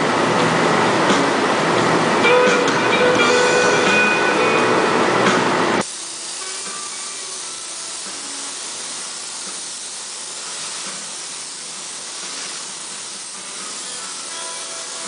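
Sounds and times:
paint spray gun hissing: 0:05.8 - 0:15.0.

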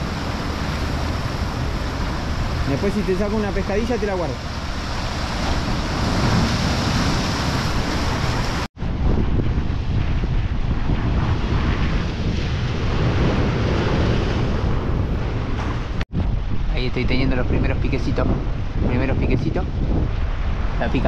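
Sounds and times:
sea surging against rocks: 0:00.0 - 0:08.7
wind buffeting microphone: 0:00.0 - 0:21.0.

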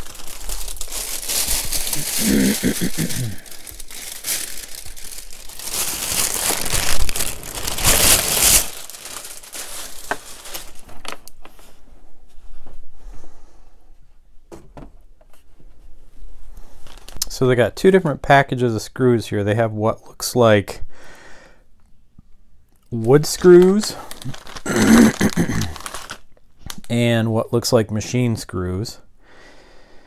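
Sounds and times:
plastic packaging crinkling: 0:00.0 - 0:11.8, 0:16.7 - 0:17.4, 0:23.0 - 0:26.9.

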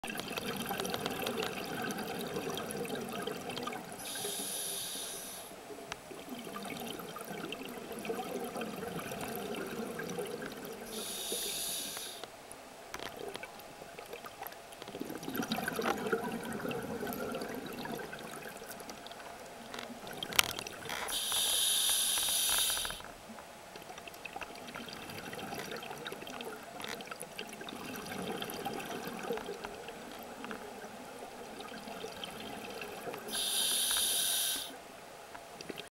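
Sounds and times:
hissing regulator inhalations: 0:04.0 - 0:05.5, 0:10.9 - 0:12.2, 0:21.1 - 0:23.0, 0:33.3 - 0:34.8.

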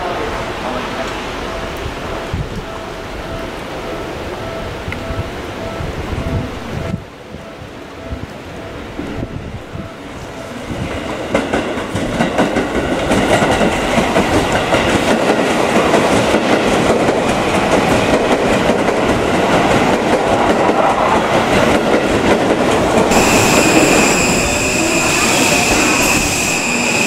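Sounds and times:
electric train passing: 0:00.0 - 0:27.0.

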